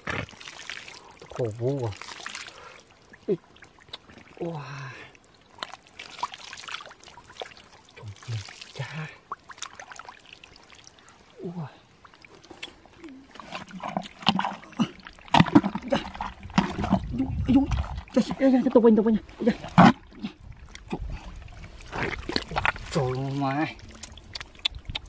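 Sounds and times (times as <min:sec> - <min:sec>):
wet squelching in mud: 0:00.0 - 0:02.8, 0:12.4 - 0:18.8, 0:19.4 - 0:25.0.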